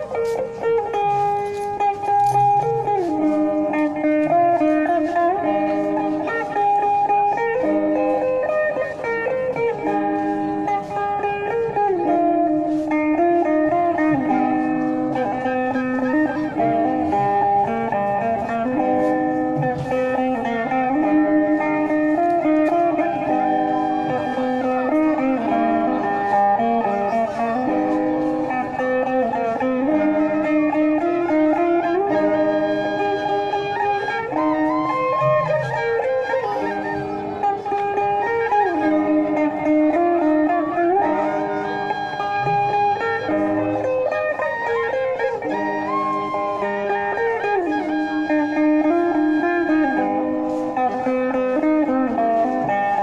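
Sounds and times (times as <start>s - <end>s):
plucked lute melody: 0.0s - 53.0s
bamboo flute long sliding notes: 12.0s - 52.8s.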